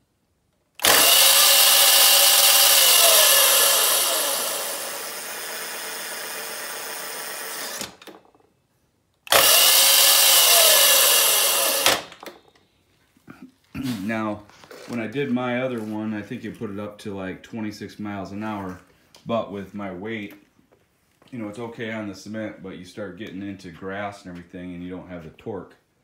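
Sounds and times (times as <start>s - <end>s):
electric motor whine: 0.8s - 8.2s, 9.3s - 12.2s.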